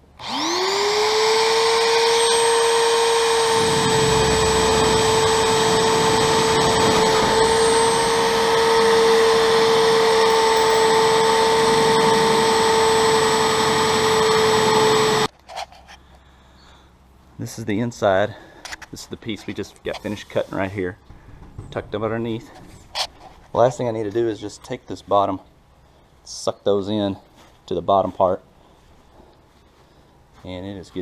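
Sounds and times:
power tool cutting sheet metal: 0:00.2 - 0:15.3.

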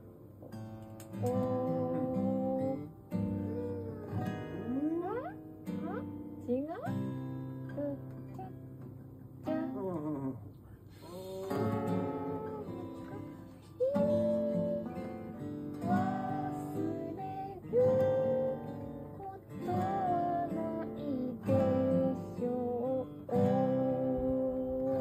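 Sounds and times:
acoustic guitar strummed slowly: 0:00.0 - 0:25.0
woman singing long notes: 0:01.1 - 0:06.1, 0:07.7 - 0:08.6, 0:11.0 - 0:25.0.

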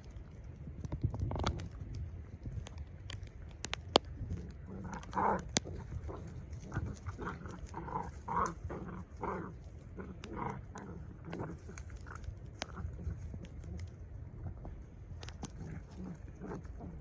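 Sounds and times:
puppies growling and yipping: 0:04.3 - 0:13.9.

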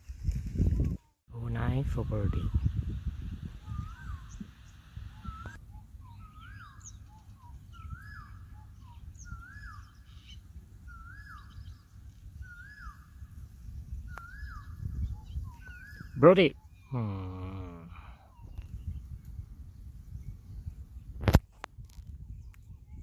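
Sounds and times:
low wind rumble: 0:00.0 - 0:23.0
bird whistling call: 0:03.6 - 0:13.2, 0:14.0 - 0:16.9.

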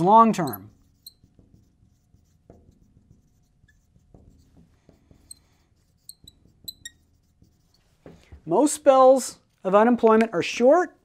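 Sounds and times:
marker strokes and scratches: 0:00.0 - 0:11.0
marker tip squeaking: 0:00.3 - 0:07.9.

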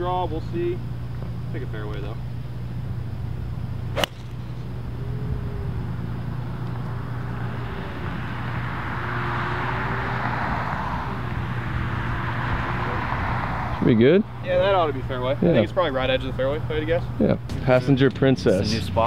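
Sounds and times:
low steady hum: 0:00.0 - 0:13.3
golf club striking ball: 0:03.9 - 0:04.7.

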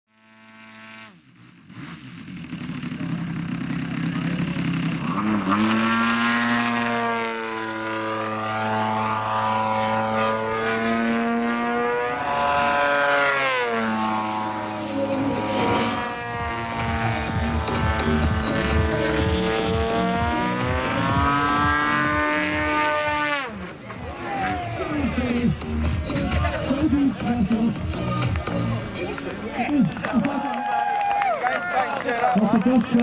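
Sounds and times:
model plane engine droning: 0:05.9 - 0:19.5.

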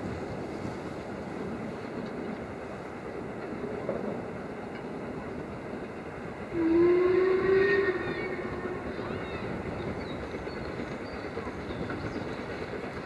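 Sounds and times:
distant steam locomotive rumble: 0:00.0 - 0:13.0
locomotive whistle: 0:06.5 - 0:10.2.

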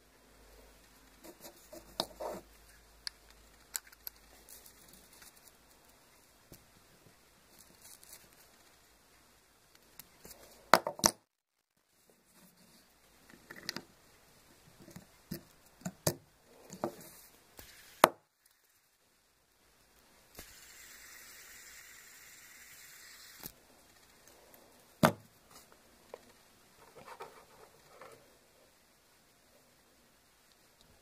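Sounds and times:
fidget spinner whirring: 0:17.3 - 0:19.0, 0:20.3 - 0:25.0.

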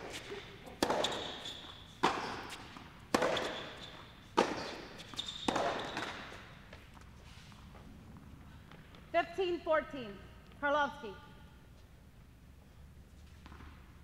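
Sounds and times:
tennis ball hit by rackets: 0:00.0 - 0:06.5.

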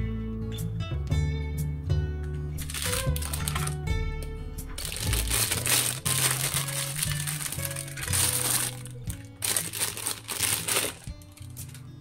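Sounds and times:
background music: 0:00.0 - 0:12.0
plastic bag crinkling: 0:02.6 - 0:03.8, 0:04.8 - 0:11.9.

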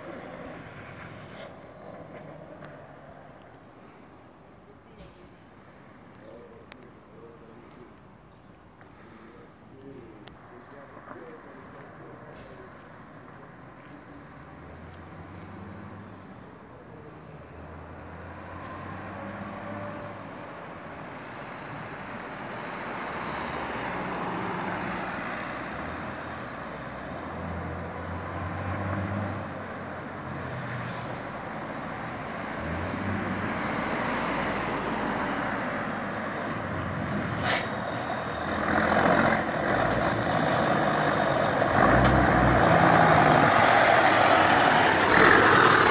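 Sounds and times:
truck diesel engine driving up: 0:17.0 - 0:45.9.

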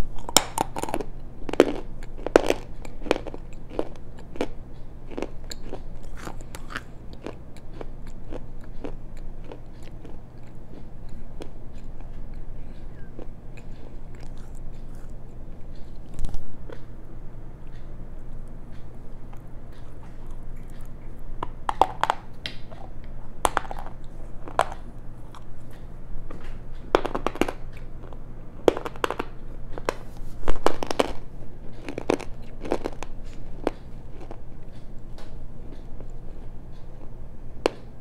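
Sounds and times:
crunchy chewing of stone: 0:00.0 - 0:16.8, 0:18.7 - 0:37.9.

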